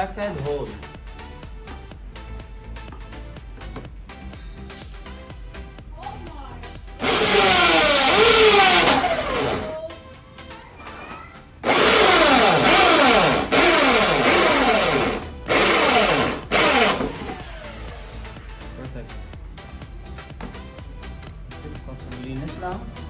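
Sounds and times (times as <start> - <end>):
background music: 0.0 - 23.0
drill with hole saw cutting plastic: 7.0 - 9.8, 11.6 - 18.2.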